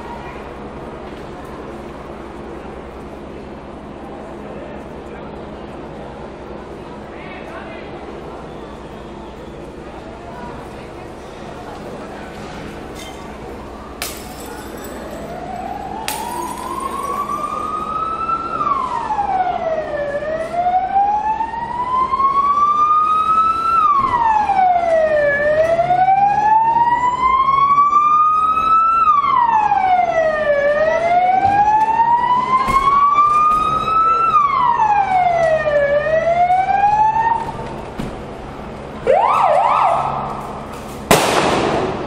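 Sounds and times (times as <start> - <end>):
police siren wailing: 0.0 - 0.7, 14.8 - 37.6, 39.0 - 40.7
vehicle engines humming: 0.0 - 20.6.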